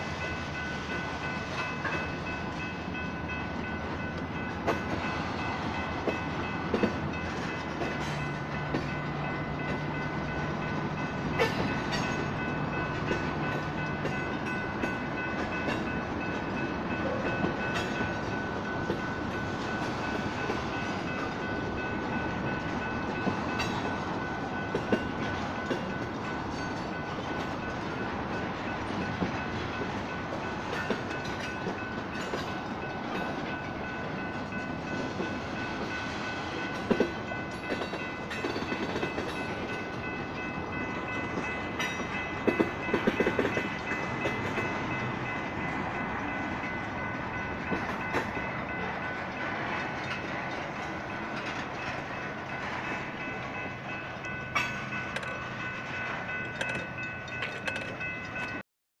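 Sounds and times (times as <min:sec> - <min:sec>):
crossing signal bells ringing: 0:00.0 - 0:58.6
train wheels clacking over rail joints: 0:28.8 - 0:58.6.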